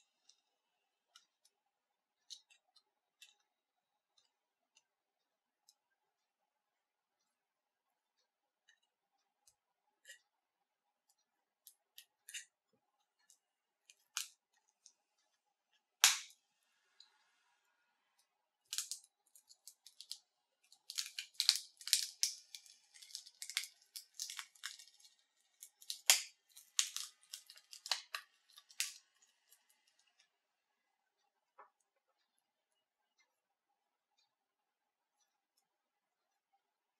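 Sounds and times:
glass cracking and snapping: 16.0 - 16.3, 18.7 - 19.0, 19.6 - 20.2, 20.8 - 29.0.

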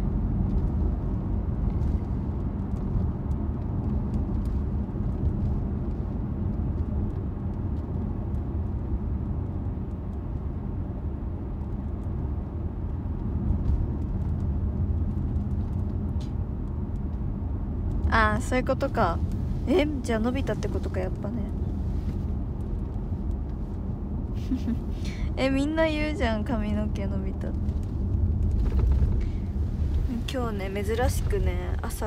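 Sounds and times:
car cabin rumble: 17.1 - 32.0.

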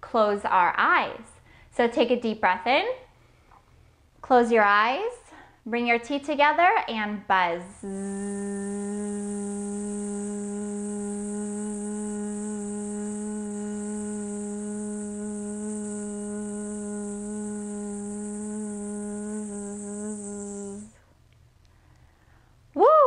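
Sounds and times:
woman humming buzz: 7.7 - 21.1.

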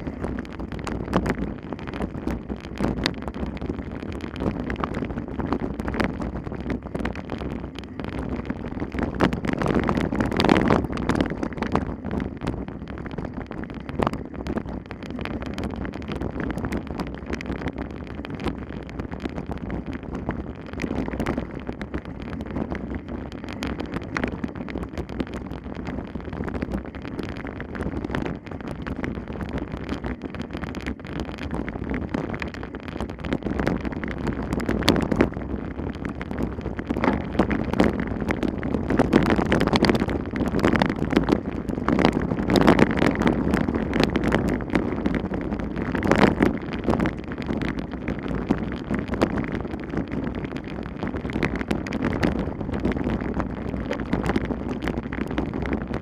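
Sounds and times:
wind buffeting microphone: 0.0 - 56.0
bicycle rattling and knocking: 27.8 - 50.1.

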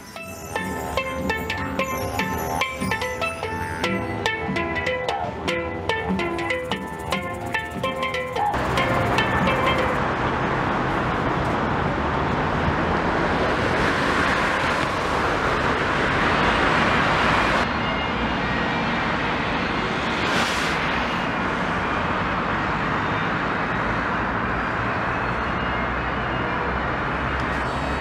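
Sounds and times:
cars driving past: 0.3 - 18.1.

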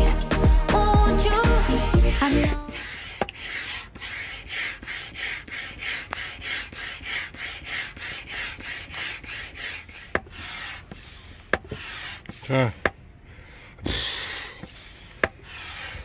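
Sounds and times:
hand pump hissing air: 2.6 - 13.0, 13.9 - 16.0.

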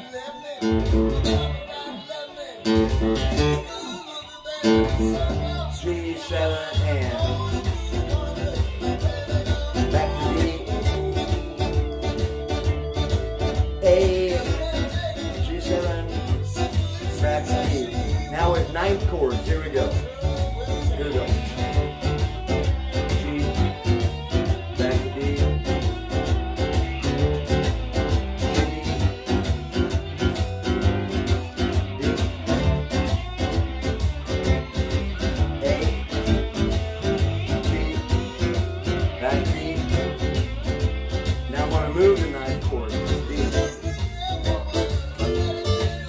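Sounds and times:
acoustic guitar blues strumming: 0.0 - 46.0.

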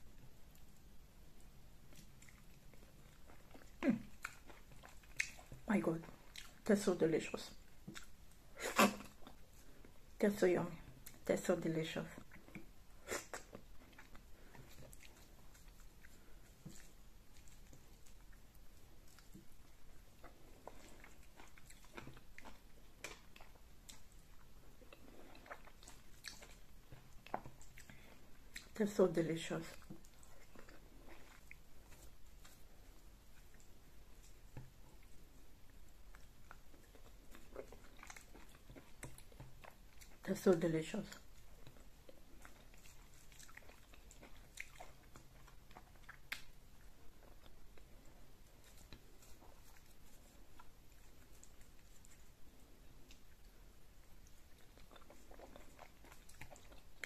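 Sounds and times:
mouth chewing clicks and smacks: 1.4 - 6.7, 7.6 - 10.0, 12.2 - 28.9, 29.6 - 40.2, 41.0 - 57.0
lip smacks: 1.9 - 6.6, 41.6 - 47.8.

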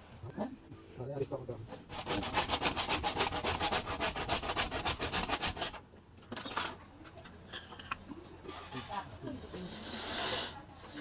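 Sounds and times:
handsaw cutting wood: 1.9 - 5.8.

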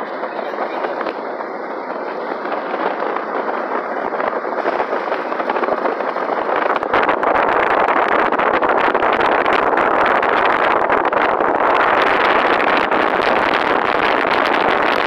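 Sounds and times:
microphone crackle: 0.0 - 15.0
road and wind noise: 0.0 - 15.0.

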